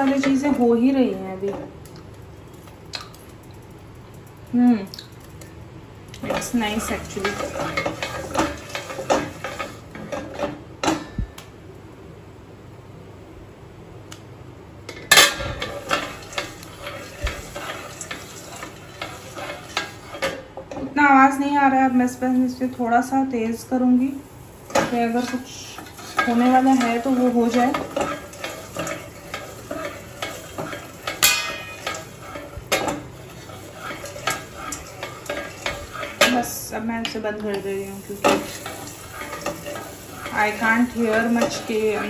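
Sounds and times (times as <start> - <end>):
oil sizzling: 0.0 - 11.9, 15.0 - 42.0
steel plate clattering onto pan: 15.0 - 20.4, 26.0 - 36.4
popcorn popping: 24.7 - 42.0.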